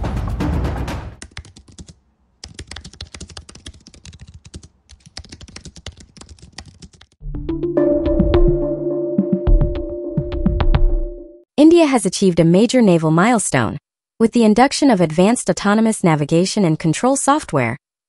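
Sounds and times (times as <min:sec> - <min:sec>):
music: 0:00.0 - 0:01.2, 0:07.2 - 0:11.5
typing on computer keyboard: 0:01.2 - 0:07.2.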